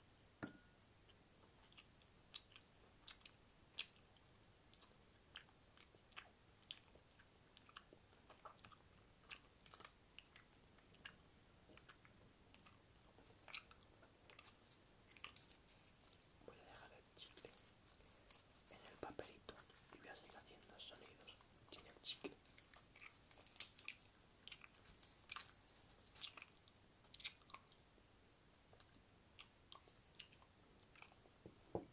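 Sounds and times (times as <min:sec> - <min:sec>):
wet lip smacks and tongue clicks: 0:01.1 - 0:16.2, 0:21.6 - 0:27.9, 0:28.7 - 0:31.2.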